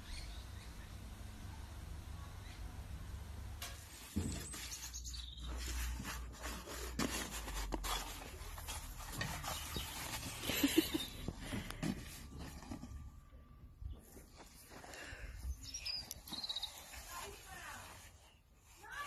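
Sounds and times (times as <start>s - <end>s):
paper wrapping crinkling: 3.9s - 13.2s.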